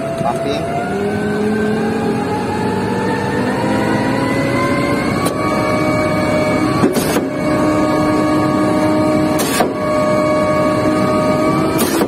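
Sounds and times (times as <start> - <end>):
pump engine droning with whine: 0.0 - 12.0
hissing clunk: 9.4 - 9.8.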